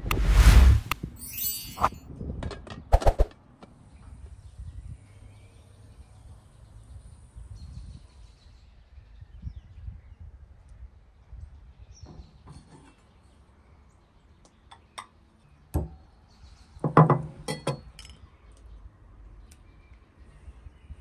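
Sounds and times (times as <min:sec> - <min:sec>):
loud rushing burst of noise: 0:00.0 - 0:01.0.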